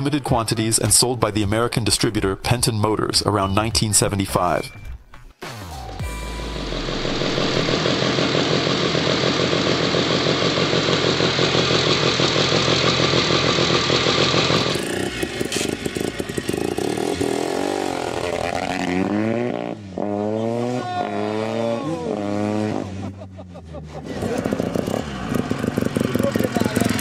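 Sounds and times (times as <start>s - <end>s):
rotary engine running: 6.8s - 17.6s
motocross bike revving: 7.0s - 27.0s.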